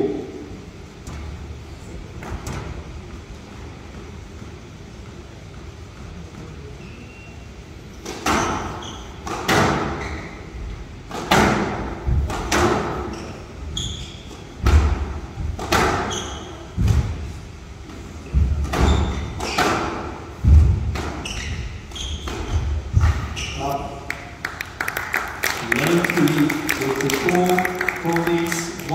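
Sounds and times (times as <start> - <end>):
shoe squeaks: 6.8 - 7.4, 8.3 - 9.2, 9.9 - 10.6, 13.0 - 14.5, 16.0 - 16.8, 18.8 - 19.7, 21.2 - 24.0
squash ball hits echoing: 8.0 - 10.0, 11.1 - 13.1, 14.6 - 17.2, 18.3 - 21.2.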